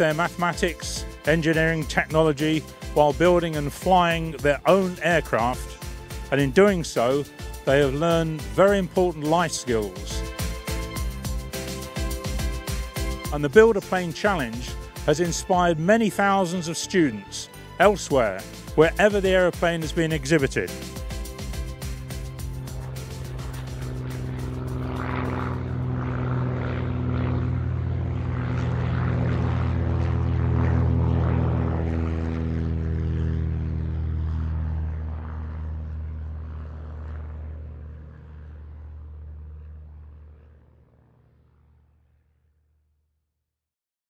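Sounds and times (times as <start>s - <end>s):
light aircraft propellers droning: 0.0s - 42.4s.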